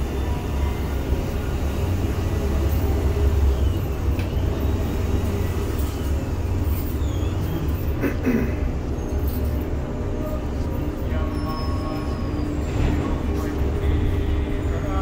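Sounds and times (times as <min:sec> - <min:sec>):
faint short squeals: 0:06.7 - 0:08.0.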